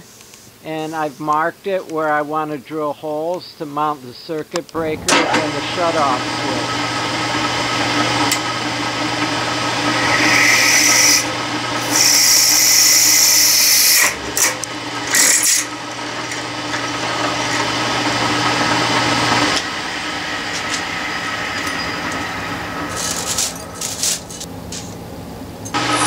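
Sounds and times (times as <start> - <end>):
low hum: 4.8 - 9.9, 19.3 - 26.0
drill press motor running: 4.8 - 26.0
drill bit grinding into brass: 6.7 - 24.8.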